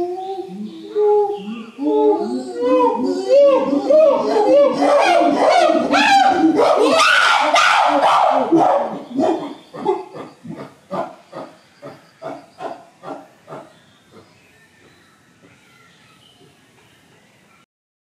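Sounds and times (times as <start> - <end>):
chimpanzee calling: 0.0 - 14.3.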